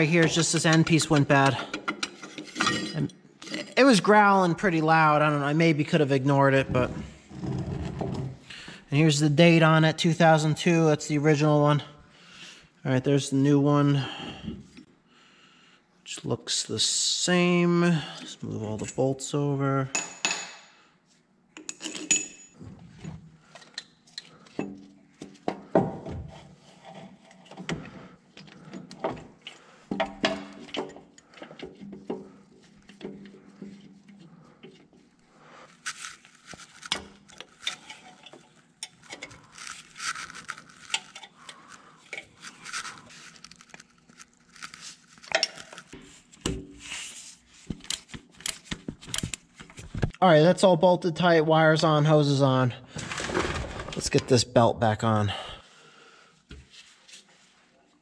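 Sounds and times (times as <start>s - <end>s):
metal bolts and tools clinking: 0.1s - 3.6s, 21.6s - 24.9s, 45.3s - 46.0s.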